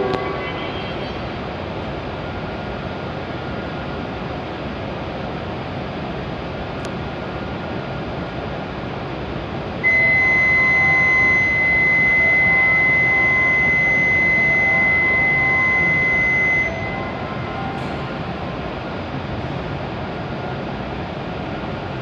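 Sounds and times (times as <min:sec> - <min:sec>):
train and station hum: 0:00.0 - 0:22.0
high-pitched electronic warning tone: 0:09.8 - 0:18.6
faint lower tones: 0:09.8 - 0:19.2.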